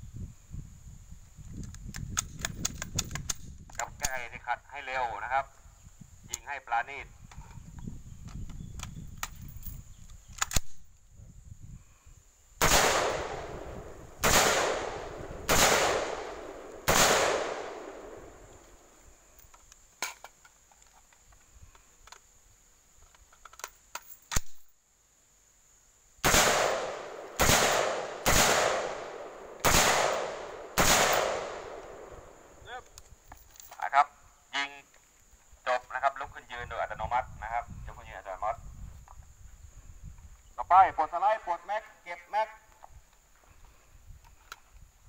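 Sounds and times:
metallic clicks of rifle handling: 1.5 - 4.2, 8.2 - 11.0, 19.4 - 22.3, 23.0 - 24.7, 32.8 - 33.8
rifle shots with echo: 12.6 - 18.6, 26.2 - 32.6.

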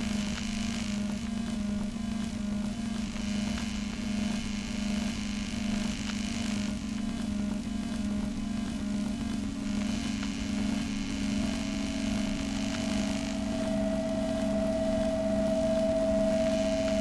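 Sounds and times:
steady low hum: 0.0 - 17.0
higher held tone: 12.4 - 17.0.

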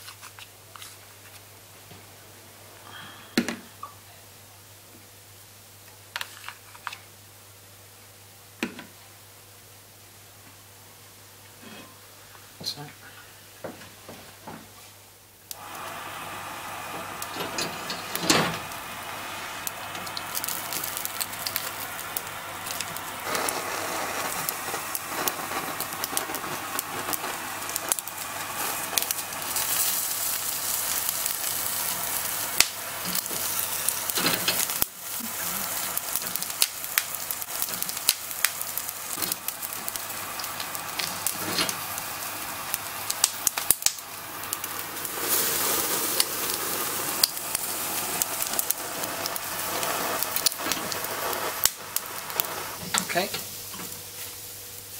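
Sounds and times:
crab legs sizzling on grill: 15.5 - 54.9.

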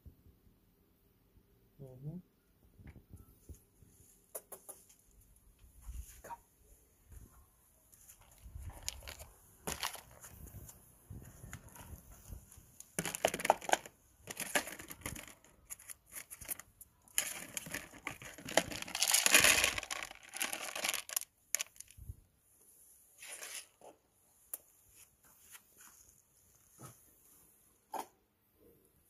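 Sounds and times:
plastic bag crinkling: 8.2 - 10.2, 13.0 - 22.0.

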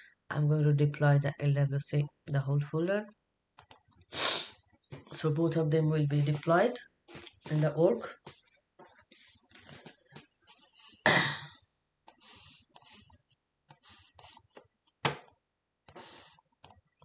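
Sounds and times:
computer clicks: 3.6 - 3.9.

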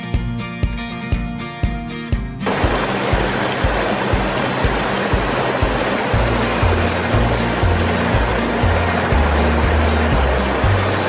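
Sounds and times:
background music with bass line: 0.0 - 11.0
stream rushing: 2.4 - 11.0.

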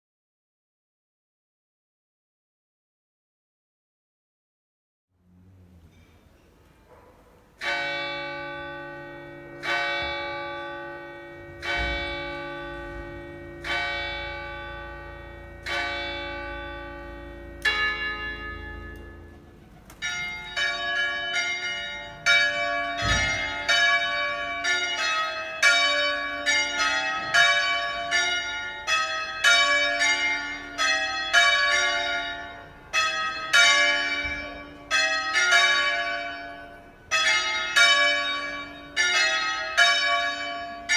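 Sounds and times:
church bells pealing: 5.7 - 40.9
single church bell tolling: 5.7 - 40.9.

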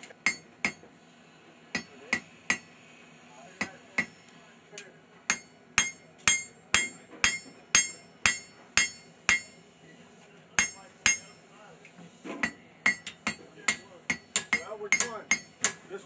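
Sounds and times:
hammer striking metal on anvil: 0.0 - 0.9, 1.7 - 2.7, 3.6 - 4.2, 5.3 - 9.8, 10.6 - 11.4, 12.4 - 15.9.

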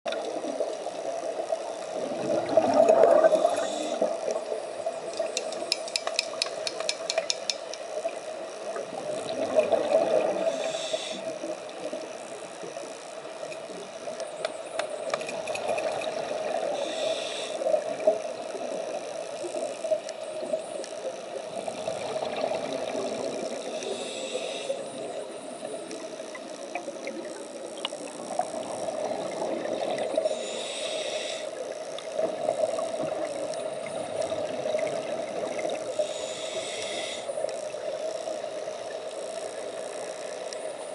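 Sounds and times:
underwater bubbles gurgling: 0.1 - 40.9
regulator hiss: 3.2 - 5.0, 10.3 - 15.1, 16.3 - 22.1, 23.0 - 40.9.

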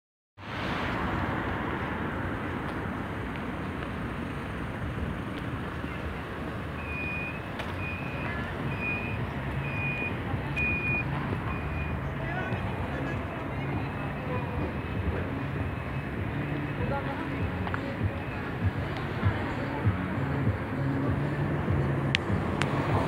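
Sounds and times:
city traffic: 0.4 - 23.0
crossing signal beeping: 5.8 - 20.0.

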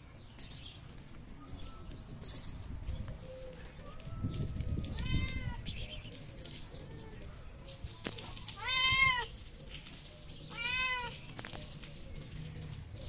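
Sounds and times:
cat meowing: 4.8 - 5.6, 8.6 - 9.3, 10.5 - 11.2.

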